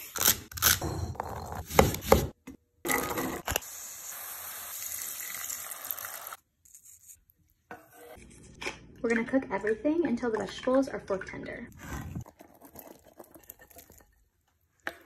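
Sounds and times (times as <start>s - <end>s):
vegetables sizzling in a pot: 3.6s - 6.4s.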